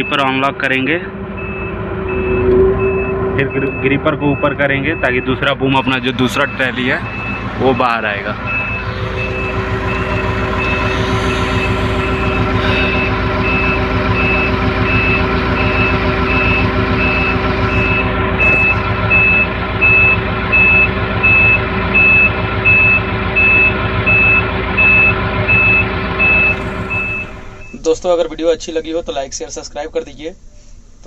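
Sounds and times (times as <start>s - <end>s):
diesel engine running: 0.0s - 31.0s
high warning beeper: 1.4s - 28.0s.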